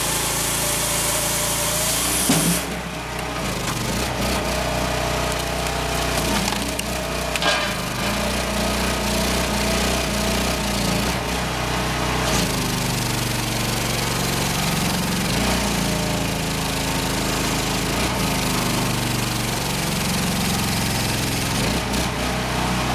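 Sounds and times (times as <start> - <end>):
firewood processor running: 0.0 - 22.9
wood cracking and splintering: 2.6 - 8.7.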